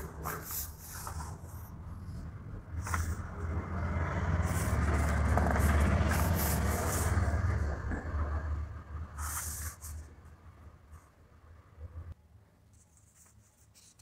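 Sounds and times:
low rumble: 1.1 - 9.4.

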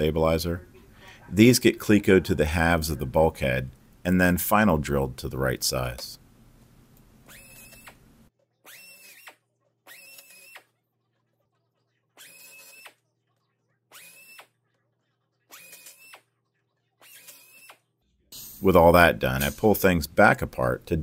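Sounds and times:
air drill whining: 7.2 - 8.0, 8.7 - 10.7, 12.2 - 13.0, 13.9 - 14.5, 15.5 - 16.2, 17.0 - 17.8.

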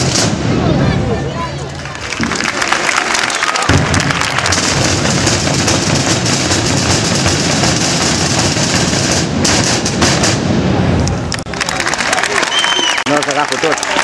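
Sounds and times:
drum corps playing rapid drumming: 3.7 - 10.4.

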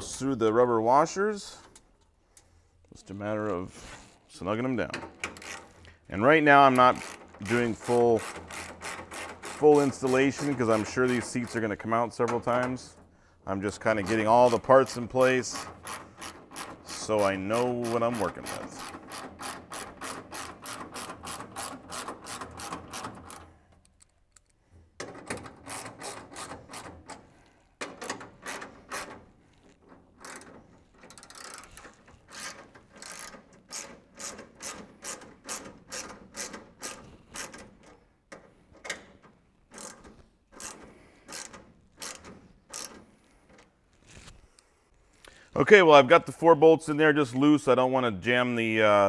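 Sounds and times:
socket ratchet clicking: 27.8 - 39.1, 39.7 - 43.0.

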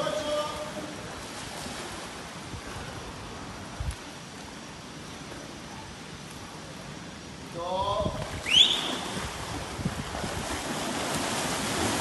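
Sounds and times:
water splashing in a pool: 8.1 - 12.0.

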